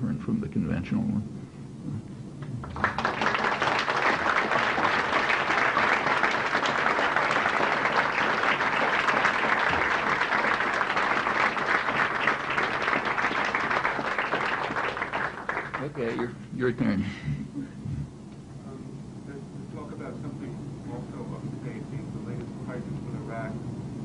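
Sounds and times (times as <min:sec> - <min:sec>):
audience applauding: 0:02.6 - 0:16.2.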